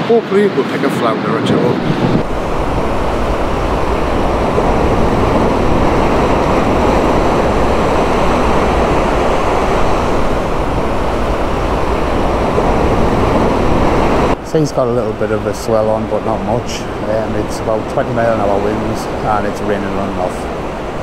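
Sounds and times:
wind buffeting microphone: 0.0s - 14.4s
surf breaking on a beach: 0.0s - 21.0s.

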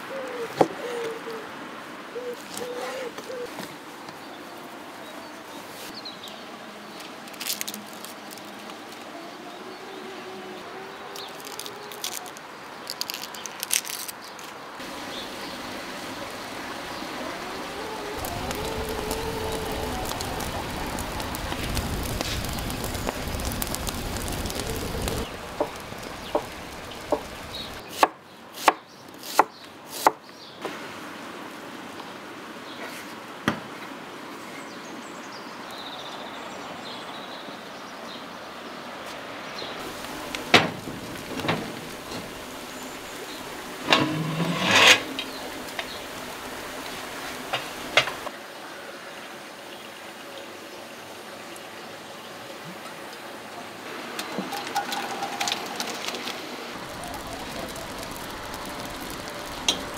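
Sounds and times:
wood fire crackling: 7.2s - 9.2s, 11.1s - 27.8s, 39.8s - 48.3s, 54.0s - 59.9s.

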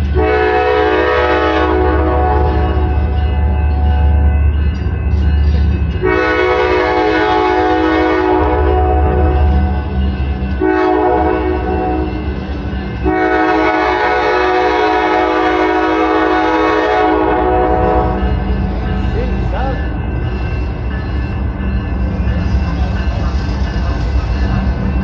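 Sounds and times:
locomotive air horn blasts: 0.2s - 2.9s, 6.0s - 9.5s, 10.6s - 12.1s, 13.0s - 18.2s.

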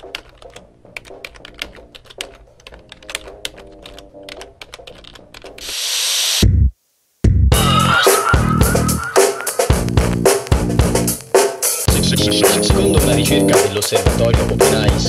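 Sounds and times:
soft background music: 0.0s - 5.6s, 11.8s - 15.0s
typing on keyboard: 0.0s - 5.6s
loud hiss: 5.6s - 6.5s
heavy low hit: 7.3s - 9.0s.

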